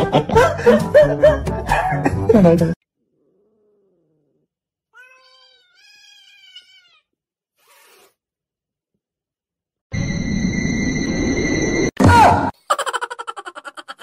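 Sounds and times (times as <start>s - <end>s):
cat moaning: 3.0s - 7.0s
cat meowing: 3.2s - 7.1s
cat hissing: 7.6s - 8.2s.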